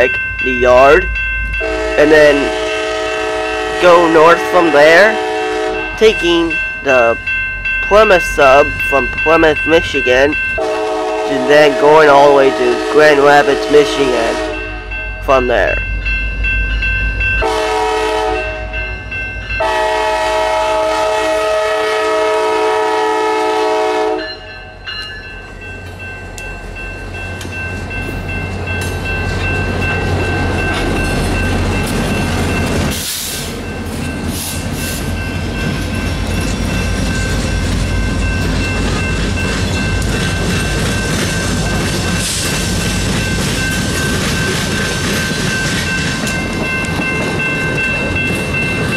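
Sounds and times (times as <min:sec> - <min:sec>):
diesel locomotive rumble: 0:00.0 - 0:48.9
train horn blasts: 0:01.6 - 0:06.0, 0:10.6 - 0:15.0, 0:17.4 - 0:18.9, 0:19.6 - 0:24.4
train wheels clattering over rails: 0:27.3 - 0:48.9.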